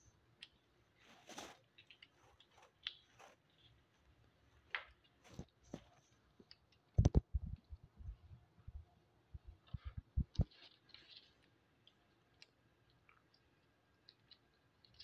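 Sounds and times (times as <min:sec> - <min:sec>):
hedgehogs rustling on paper: 0:00.9 - 0:06.6, 0:09.7 - 0:12.2.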